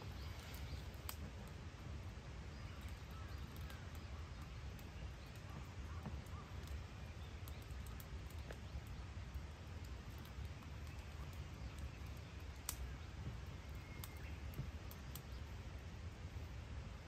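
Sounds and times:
faint bird chirps: 0.0s - 1.2s, 2.4s - 9.2s, 10.3s - 15.6s.

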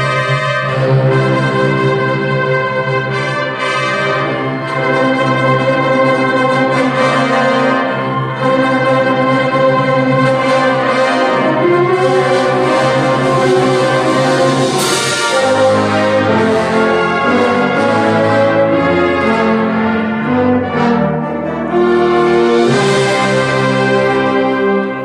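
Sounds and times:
concert band playing chords: 0.0s - 25.0s.

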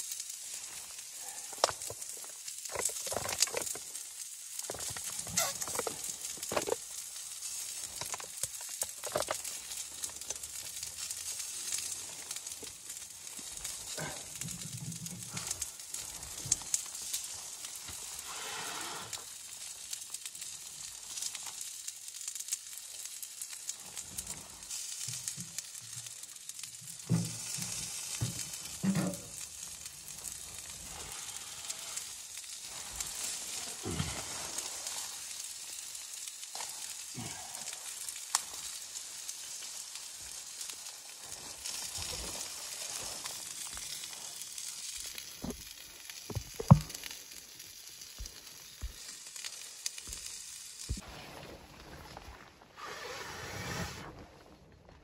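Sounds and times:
food sizzling: 0.0s - 51.0s
fire hissing and crackling: 0.0s - 55.0s
plastic bag rustling: 0.4s - 18.2s, 38.4s - 47.4s
firewood knocks: 46.3s - 47.0s.

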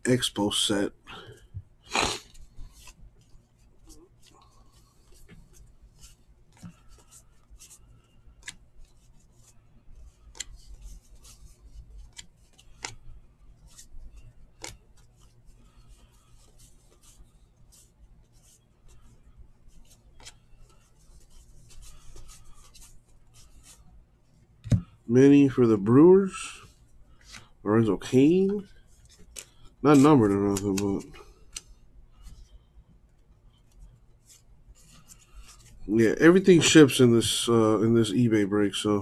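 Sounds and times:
cardboard cards rubbing: 1.4s - 23.9s, 25.9s - 32.5s, 33.6s - 37.6s
soft card clicks and snaps: 8.4s - 8.6s, 12.0s - 13.0s, 14.6s - 14.8s.

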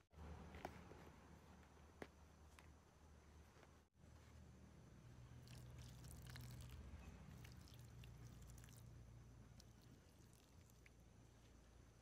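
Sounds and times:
faint steady low hum: 0.2s - 12.0s.

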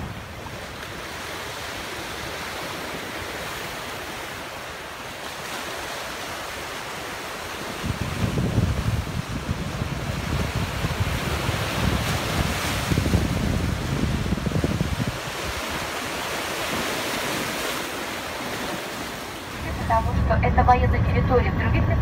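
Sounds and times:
surf against rocky shore: 0.0s - 22.0s
wind buffeting microphone: 7.6s - 17.7s.

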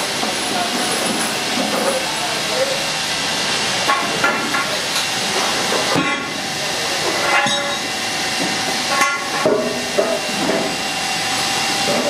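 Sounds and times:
loud steady hiss: 0.0s - 12.0s
metal clanks with ring: 7.1s - 7.9s, 8.9s - 10.2s.

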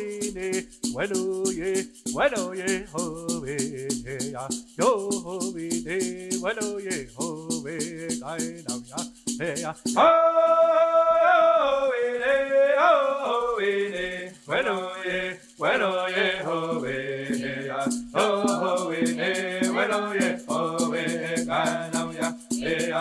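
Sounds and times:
person singing chant-like melody: 0.0s - 23.0s
rattle shaken in steady beat: 0.0s - 23.0s.

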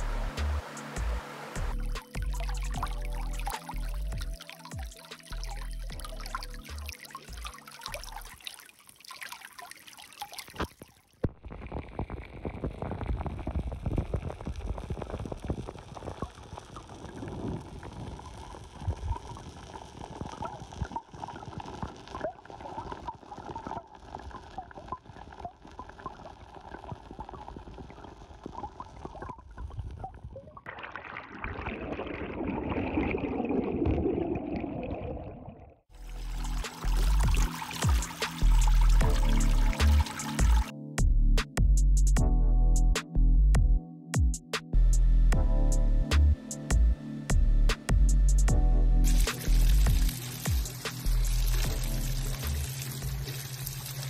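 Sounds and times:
underwater current gurgling: 1.8s - 40.7s, 49.0s - 54.0s
dense bubbling: 10.4s - 40.7s, 49.0s - 54.0s
stream splashing over rocks: 36.0s - 40.7s, 49.1s - 54.0s.

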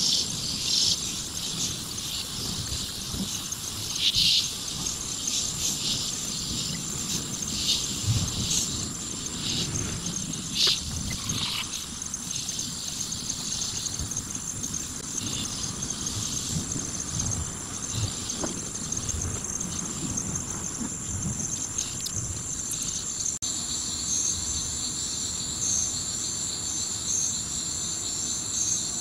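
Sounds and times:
buzzy insect calls: 0.0s - 29.0s
insects high-pitched trill: 0.0s - 29.0s.

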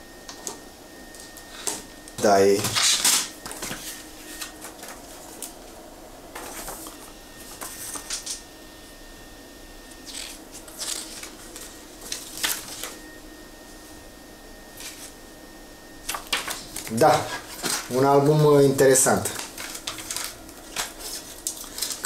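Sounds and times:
cd cases clicking and rustling: 16.1s - 17.9s, 19.1s - 22.0s.

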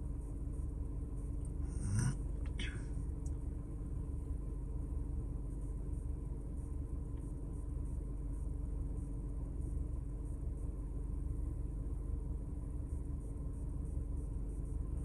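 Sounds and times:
faint constant hum: 0.0s - 15.0s.

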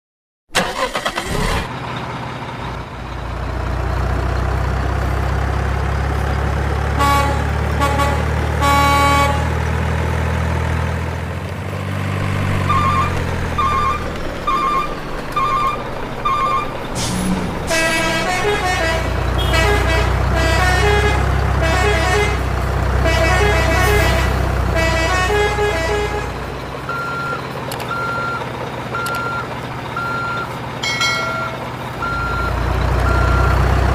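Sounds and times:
diesel truck engine rumbling: 0.5s - 33.9s
truck horn toots: 6.9s - 9.6s, 12.6s - 16.9s, 17.6s - 27.4s
melodic multi-note horn calls: 7.0s - 9.5s, 12.6s - 16.8s, 17.7s - 26.4s
even beeps: 12.6s - 16.8s
reversing beeps: 12.7s - 16.8s, 26.9s - 28.4s, 29.0s - 30.5s, 31.2s - 33.6s.

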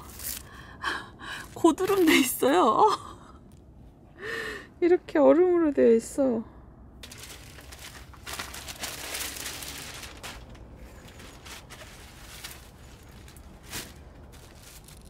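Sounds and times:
plastic packaging crinkling: 7.0s - 15.0s.

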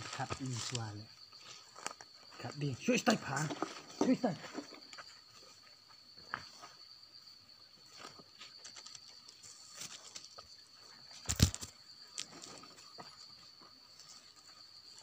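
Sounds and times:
rustling and light knocks: 3.4s - 6.8s.

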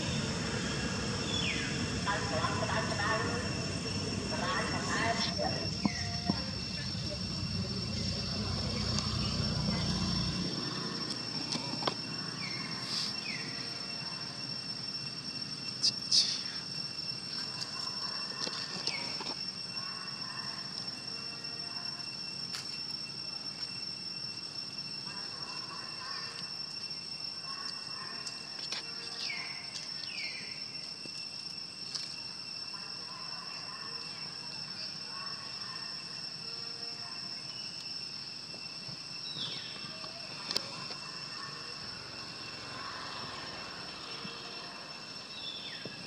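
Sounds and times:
downward sweeping calls: 0.0s - 14.8s
high-pitched insect drone: 0.0s - 46.0s.

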